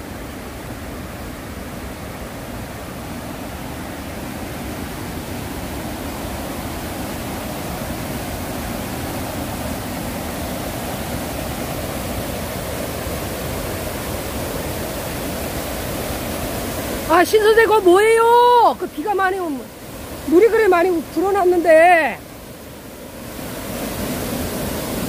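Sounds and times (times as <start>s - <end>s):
water rushing over rocks: 0.0s - 25.0s.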